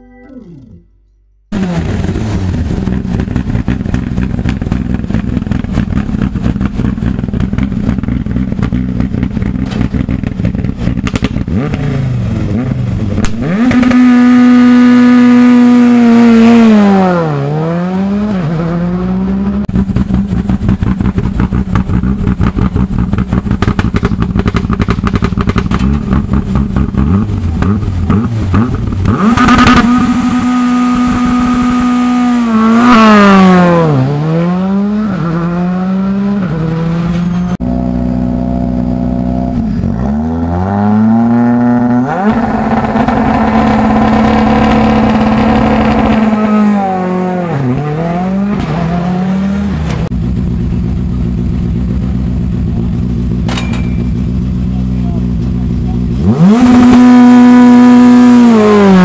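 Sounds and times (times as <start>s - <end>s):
rally car revving and accelerating: 1.5s - 53.5s, 54.1s - 59.0s
rally car engine popping idle: 1.6s - 14.0s, 19.7s - 30.4s, 50.0s - 57.1s.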